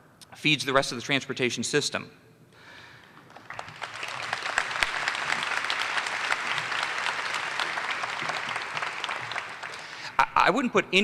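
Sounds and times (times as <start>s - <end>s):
audience applauding: 3.1s - 10.4s.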